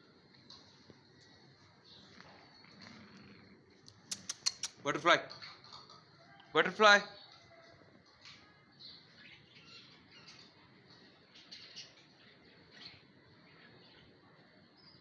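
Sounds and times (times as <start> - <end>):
faint high bird chirps: 8.2 - 15.0.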